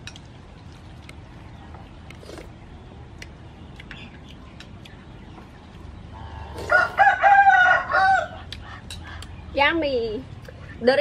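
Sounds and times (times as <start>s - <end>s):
low outdoor background: 0.0s - 11.0s
rooster crowing: 6.3s - 8.5s.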